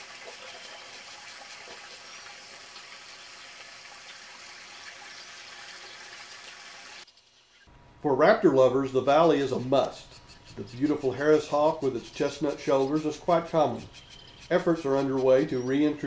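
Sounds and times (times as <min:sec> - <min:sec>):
running trickling water: 0:00.0 - 0:07.2.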